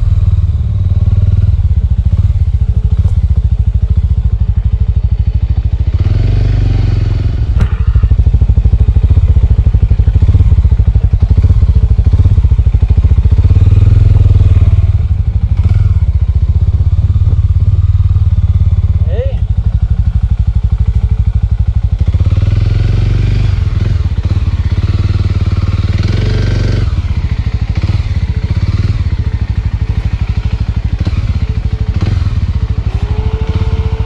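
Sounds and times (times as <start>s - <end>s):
motorcycle engine running: 0.0s - 34.0s
motorcycle knocking over bumps: 7.6s - 13.5s.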